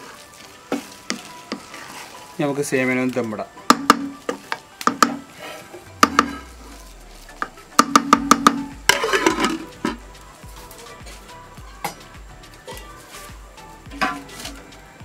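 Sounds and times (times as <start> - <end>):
wooden spatula knocking pot: 3.6 - 5.3, 6.0 - 6.4, 7.4 - 10.0
metal lid clattering: 8.9 - 10.0.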